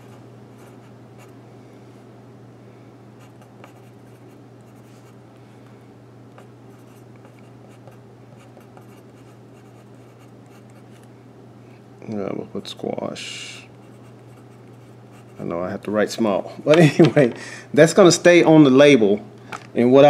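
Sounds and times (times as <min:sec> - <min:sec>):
steady low hum: 0:00.0 - 0:20.0
pencil scratching on paper: 0:03.2 - 0:05.2, 0:06.7 - 0:11.0.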